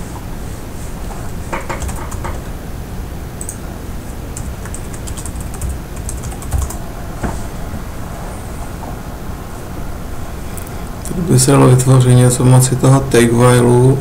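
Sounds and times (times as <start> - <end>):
computer keyboard typing: 1.6 - 2.4, 3.4 - 3.6, 4.4 - 6.8.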